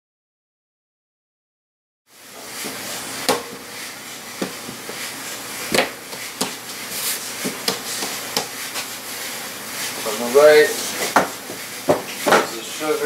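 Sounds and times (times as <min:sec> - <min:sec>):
dough knocking on countertop: 0:03.2 - 0:03.6, 0:04.4 - 0:05.0, 0:05.7 - 0:06.7, 0:07.4 - 0:08.9, 0:11.0 - 0:12.6.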